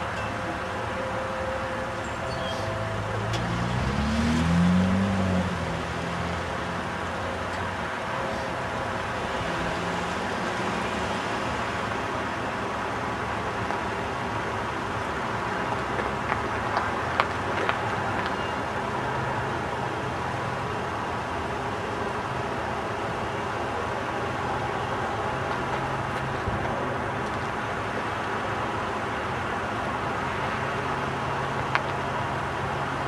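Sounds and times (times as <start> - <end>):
road traffic noise: 0.0 - 33.0
vehicle engine accelerating: 1.6 - 12.1.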